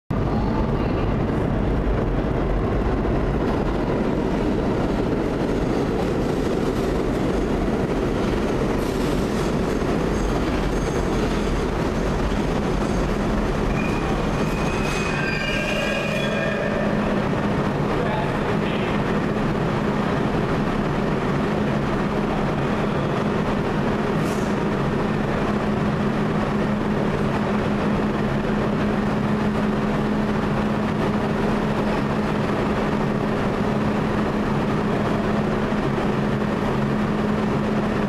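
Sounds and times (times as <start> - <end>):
subway train rumbling: 0.1 - 38.0
brakes squealing: 12.8 - 17.2.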